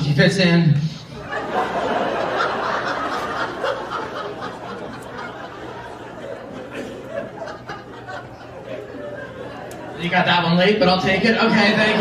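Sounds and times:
audience laughing: 0:01.2 - 0:10.2, 0:11.5 - 0:12.0.

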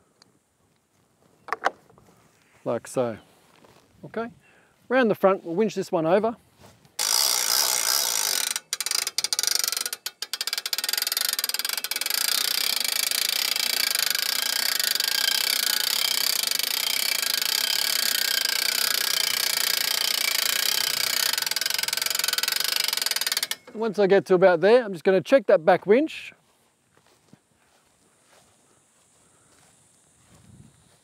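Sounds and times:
hand-cranked winch clicking: 0:07.0 - 0:24.1.

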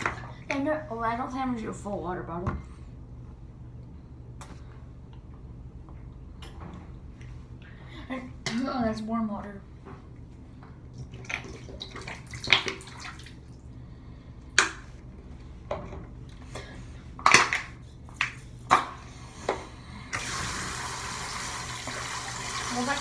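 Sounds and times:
water running from faucet: 0:20.2 - 0:23.0.

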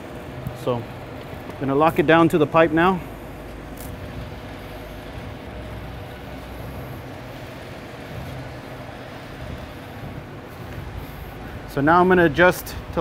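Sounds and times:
low background rumble and hiss: 0:00.0 - 0:13.0.

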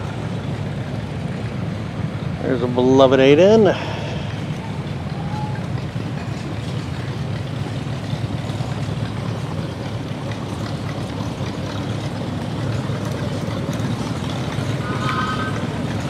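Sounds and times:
engine rumbling: 0:00.0 - 0:16.0.

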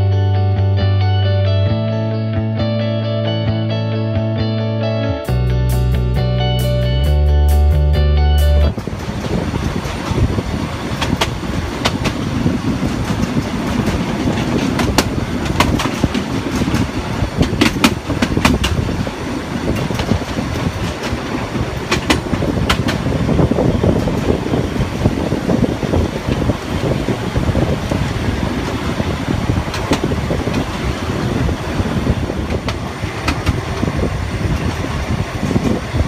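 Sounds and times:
train wheels rumbling on rail: 0:08.4 - 0:36.0.

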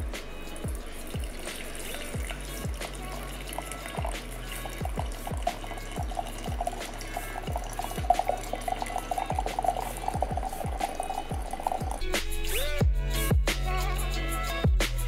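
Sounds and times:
liquid pouring: 0:00.0 - 0:12.8
music with deep beat: 0:00.0 - 0:15.0.

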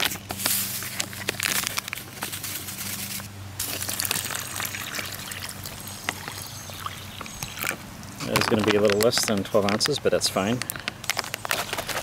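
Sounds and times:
thin plastic crinkling: 0:00.0 - 0:12.0
water pouring into plastic bag: 0:03.6 - 0:07.7.

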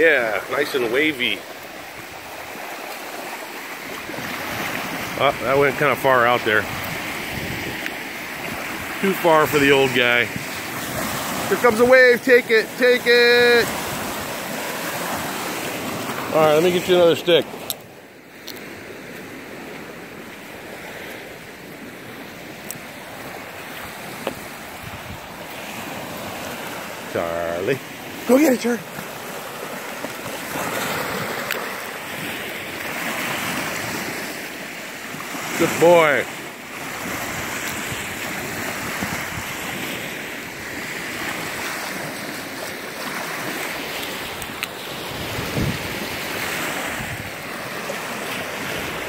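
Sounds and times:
wind blowing: 0:00.0 - 0:36.2, 0:36.8 - 0:49.0
small waves washing onto sand: 0:00.0 - 0:49.0
wind buffeting microphone: 0:04.1 - 0:11.9, 0:23.0 - 0:26.0, 0:36.9 - 0:39.9, 0:44.3 - 0:47.6.

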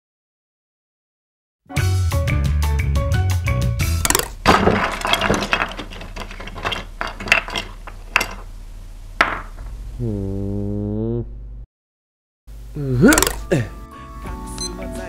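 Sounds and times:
music: 0:01.7 - 0:04.2, 0:12.8 - 0:15.0
clinking and clattering crashes: 0:04.0 - 0:08.6.

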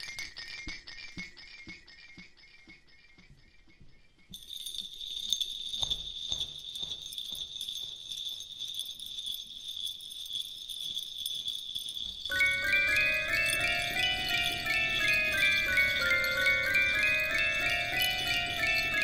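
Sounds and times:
jingling bells: 0:04.4 - 0:19.0
soft regular pulse: 0:04.4 - 0:19.0.

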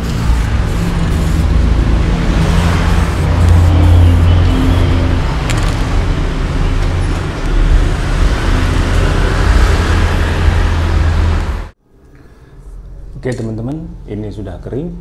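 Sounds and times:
road traffic rumble: 0:00.0 - 0:11.8.

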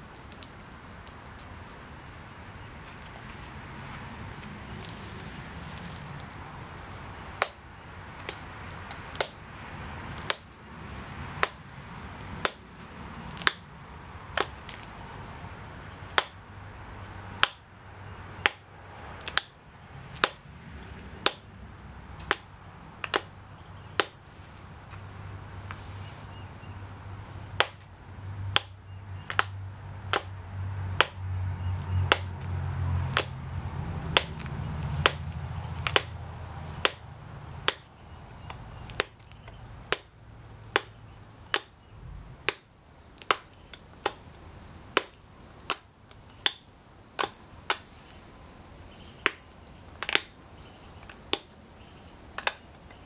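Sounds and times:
flint flakes clicking: 0:34.1 - 0:37.0, 0:49.2 - 0:50.3.

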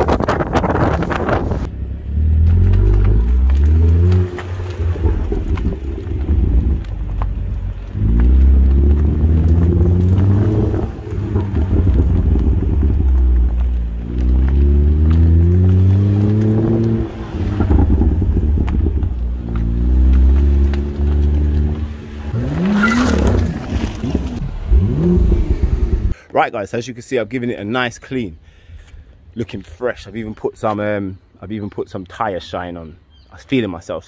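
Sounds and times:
car engine accelerating hard: 0:00.7 - 0:26.1.

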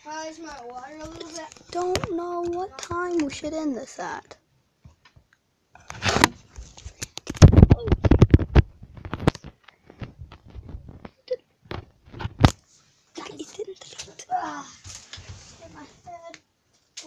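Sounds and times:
microphone handling clicks and bumps: 0:05.8 - 0:12.6.

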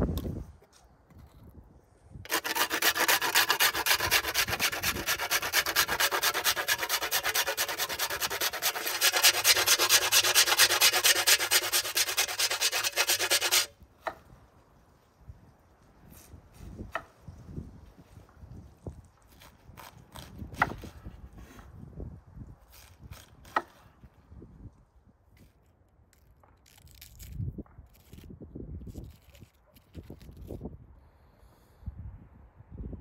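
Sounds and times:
box grater rasping: 0:02.3 - 0:13.7.

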